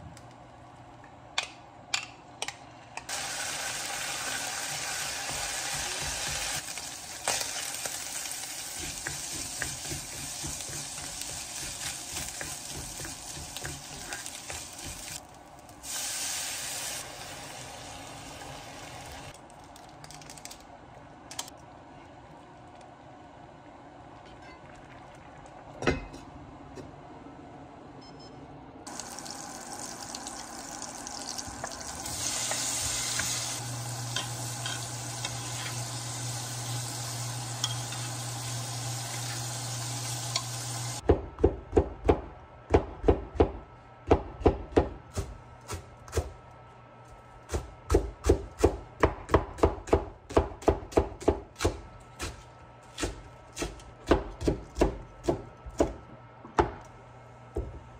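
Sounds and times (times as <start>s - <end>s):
food sizzling in butter: 3.1s - 15.2s, 28.9s - 41.0s
knife chopping on cutting board: 47.5s - 56.0s.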